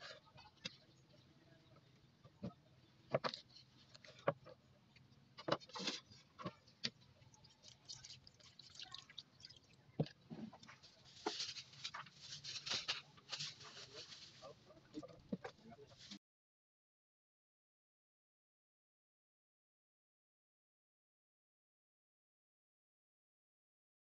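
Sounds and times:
water pouring and splashing: 6.8 - 14.0.

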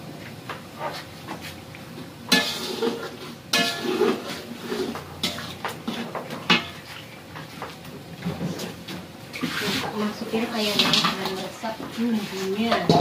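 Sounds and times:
spatula clanging against pan: 2.3 - 2.8, 3.5 - 4.1
metal spatula scraping wok: 2.3 - 6.8, 9.4 - 13.0.

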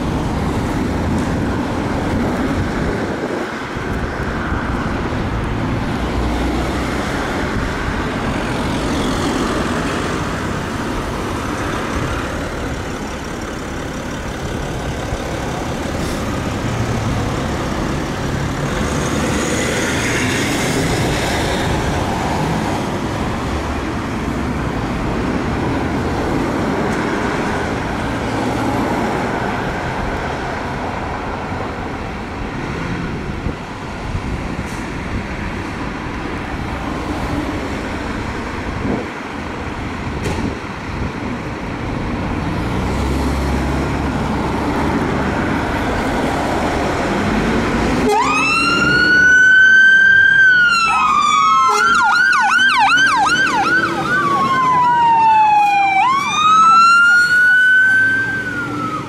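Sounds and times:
diesel engines rumbling: 0.0 - 59.0
electronic siren wailing and yelping: 48.0 - 59.0.

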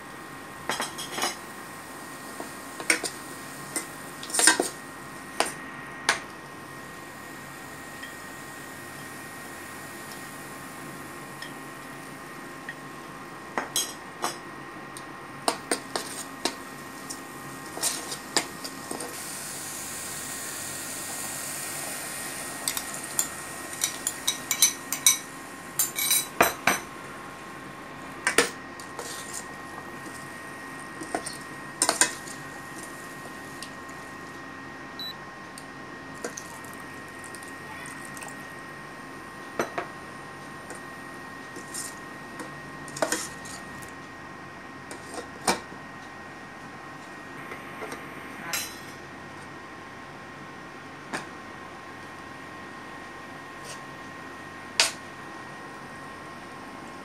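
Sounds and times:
faint high hum: 0.0 - 44.9.

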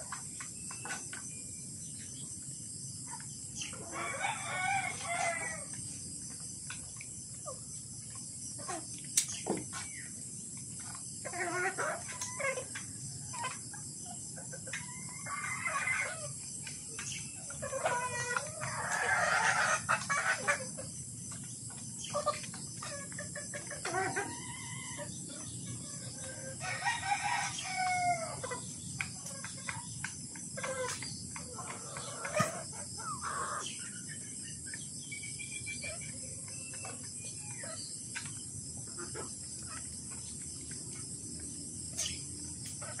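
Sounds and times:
chicken clucking: 3.0 - 43.0
rooster crowing: 3.8 - 5.7, 26.4 - 28.4.

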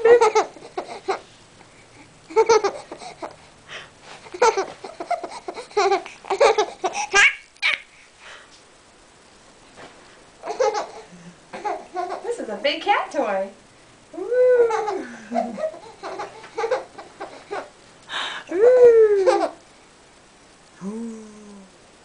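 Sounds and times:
baby laughing: 0.0 - 1.2, 2.3 - 3.4, 4.3 - 7.9, 10.4 - 12.3, 14.6 - 17.7, 18.6 - 19.6.

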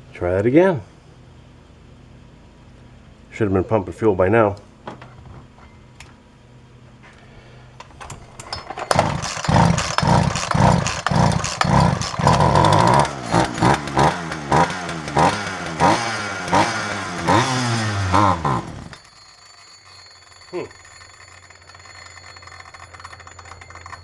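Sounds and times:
chainsaw engine revving: 8.7 - 19.6.

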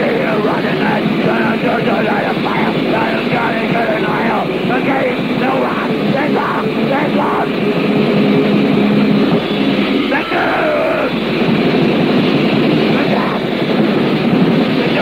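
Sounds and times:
harsh shouted vocals: 0.0 - 7.6, 10.1 - 11.2, 13.0 - 13.5, 14.8 - 15.0
distorted guitars: 0.0 - 15.0
drums playing: 0.0 - 15.0.

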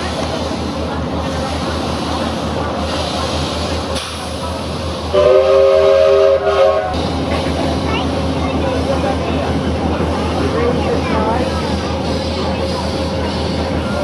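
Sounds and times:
train running with low beat: 0.0 - 14.0
steam locomotive whistle: 5.1 - 7.0.

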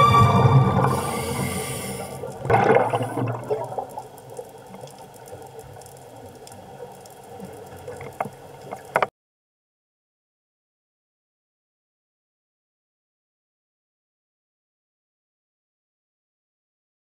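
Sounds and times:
exhaled bubbles rushing underwater: 0.2 - 8.8
faint underwater hiss: 0.8 - 8.8.

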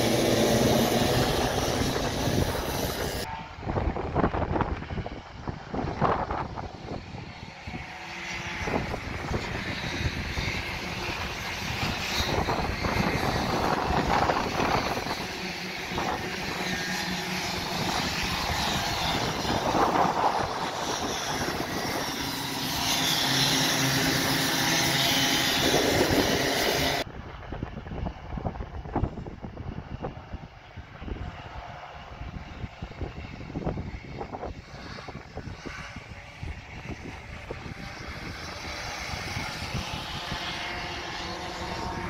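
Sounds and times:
racing kart engines revving: 0.0 - 3.8, 6.0 - 27.1, 35.2 - 42.0.

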